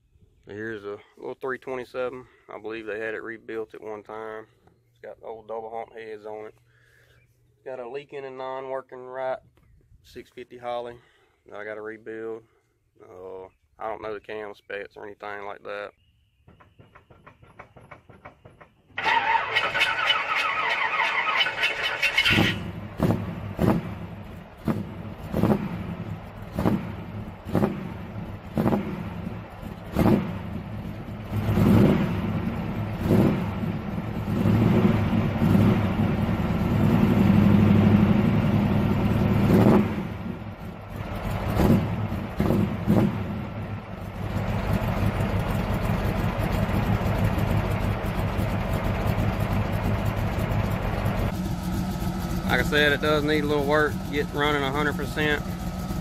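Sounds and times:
car engine running rough: 0:16.5 - 0:56.0.

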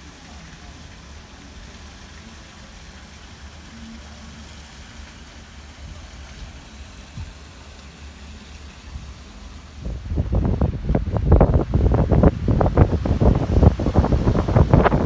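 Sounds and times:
wind buffeting microphone: 0:08.9 - 0:15.0.

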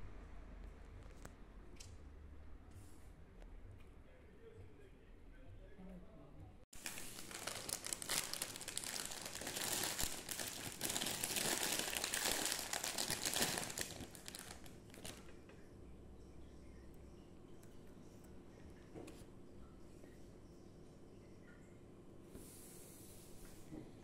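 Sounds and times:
plastic bag crinkling: 0:06.8 - 0:15.3.

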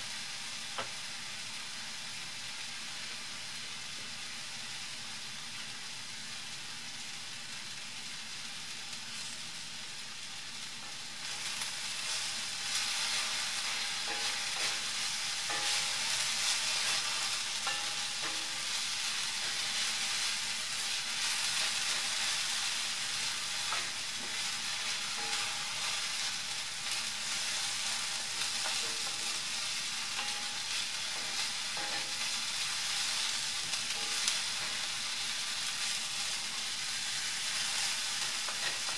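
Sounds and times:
onions sizzling in oil: 0:00.0 - 0:38.9
wooden spatula scraping a pan: 0:11.3 - 0:35.0.

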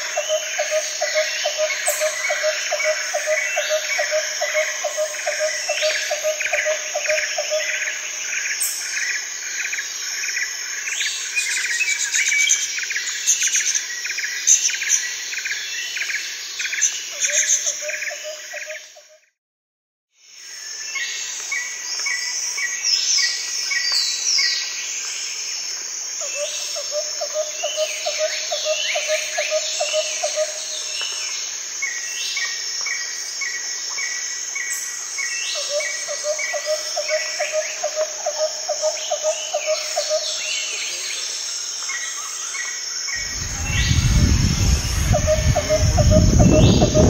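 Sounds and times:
high insect buzz: 0:42.6 - 0:47.0
birds chirping: 0:43.2 - 0:47.0
low pulsed trill: 0:43.2 - 0:47.0
low rumble: 0:43.2 - 0:47.0.

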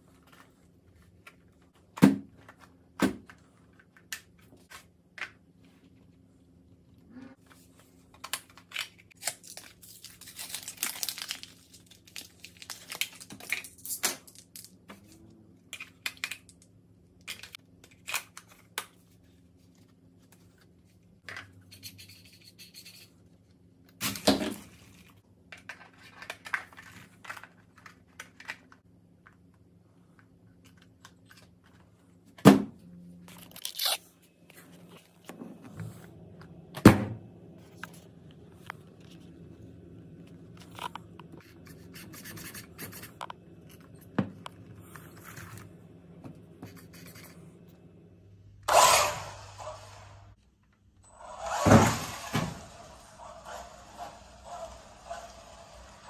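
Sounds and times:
plastic rustling and crinkling: 0:07.4 - 0:15.1.

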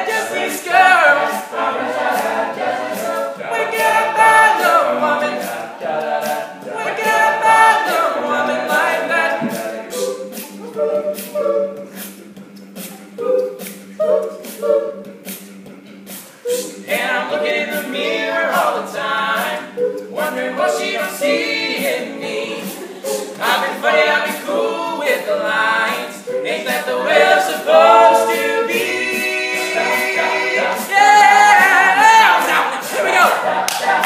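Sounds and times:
male a cappella group singing: 0:00.0 - 0:34.0
sharp rhythmic clicks: 0:00.1 - 0:34.0.

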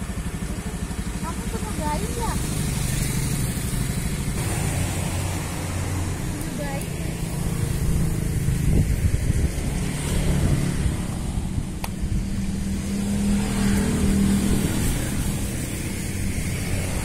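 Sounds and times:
vehicle engine running: 0:00.0 - 0:17.0
sharp click: 0:11.8 - 0:12.0.

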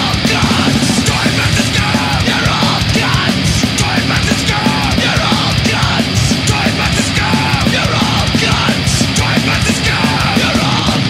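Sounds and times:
bass guitar: 0:00.0 - 0:11.0
distorted electric guitars: 0:00.0 - 0:11.0
hard-hit drumming: 0:00.0 - 0:11.0.

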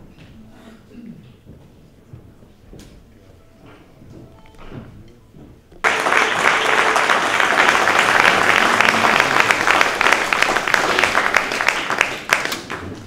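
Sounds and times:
audience applause: 0:05.8 - 0:13.0.

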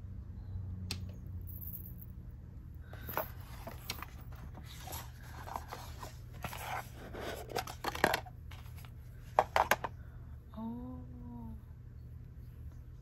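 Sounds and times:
low steady hum: 0:00.0 - 0:13.0
cardboard boxes rustling and scraping: 0:03.0 - 0:09.8.

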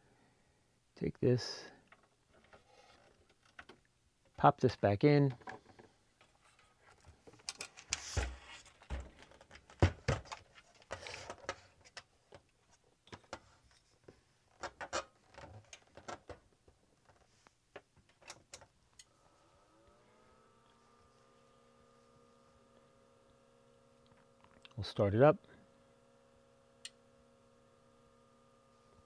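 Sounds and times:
cooling fan hum: 0:19.0 - 0:29.0.

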